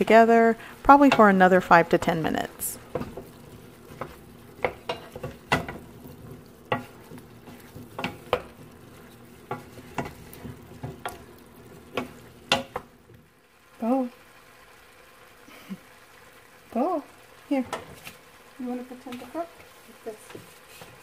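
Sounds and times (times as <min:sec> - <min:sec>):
meat sizzling: 0:00.0 - 0:21.0
wooden spoon knocking on pot: 0:00.9 - 0:12.9.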